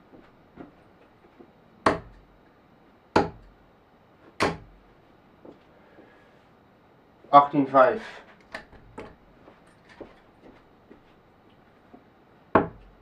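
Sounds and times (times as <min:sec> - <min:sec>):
darts hitting dartboard: 0:04.4 - 0:04.7, 0:12.6 - 0:12.9.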